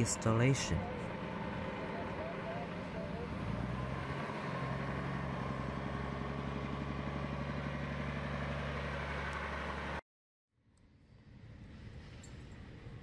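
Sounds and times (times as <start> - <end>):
heavy truck engine running: 0.0 - 10.0.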